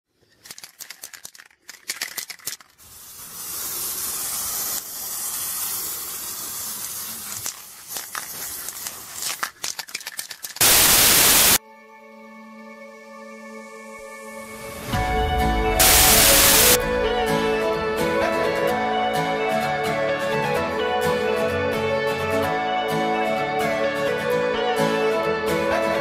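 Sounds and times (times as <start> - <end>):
crackling clicks: 0.3 - 2.8, 7.4 - 11.6
long hissing noise: 2.8 - 9.3, 10.6 - 11.6, 14.6 - 17.4
loud burst of static: 10.6 - 11.6, 15.7 - 16.8.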